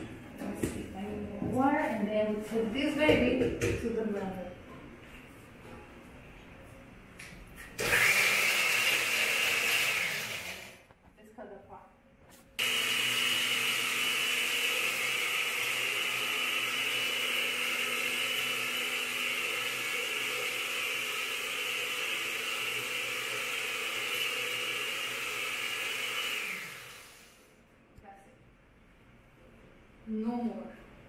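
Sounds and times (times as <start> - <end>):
blender motor running: 7.8 - 10.8, 12.6 - 27.4.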